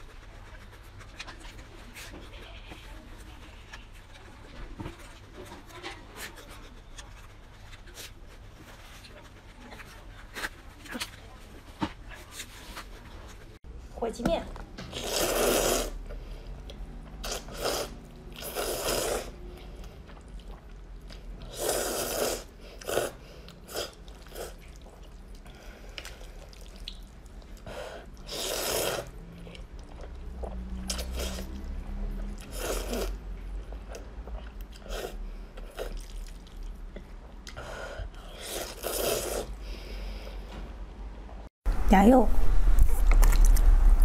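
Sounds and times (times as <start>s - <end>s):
person slurping noodles: 14.9s - 16.1s, 17.2s - 19.4s, 21.4s - 24.8s, 27.6s - 29.2s, 30.8s - 31.6s, 32.4s - 33.2s, 38.2s - 39.7s.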